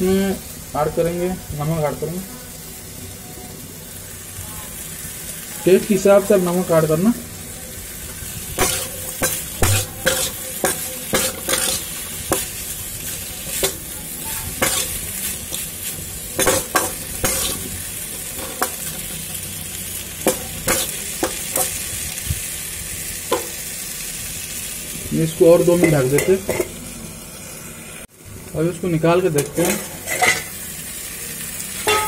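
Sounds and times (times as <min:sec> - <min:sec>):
potatoes sizzling in oil: 0:00.0 - 0:32.0
spatula scraping pan: 0:08.6 - 0:19.4, 0:20.2 - 0:21.8, 0:29.4 - 0:30.6.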